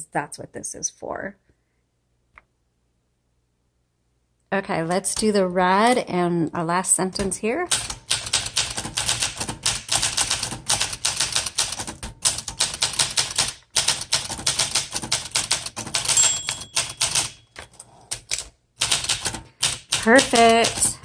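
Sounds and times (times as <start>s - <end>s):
manual typewriter typing: 7.7s - 21.0s
typewriter margin bell: 16.0s - 17.6s.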